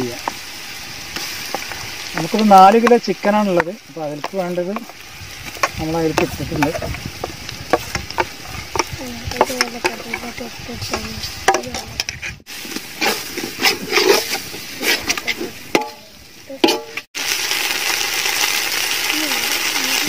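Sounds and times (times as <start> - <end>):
light sizzle: 0.0 - 20.0
metal ladle scraping pot: 4.2 - 17.1.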